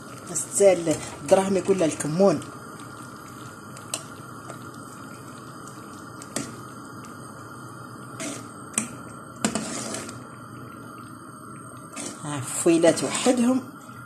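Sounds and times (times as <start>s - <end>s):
spoon stirring thick puree: 9.4s - 10.2s.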